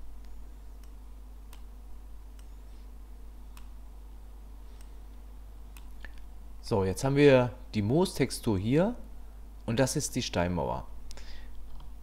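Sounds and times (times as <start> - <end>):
steady low hum: 0.0 - 12.0
computer mouse clicks: 0.2 - 1.7, 2.3 - 2.6, 3.5 - 3.8, 5.7 - 6.3.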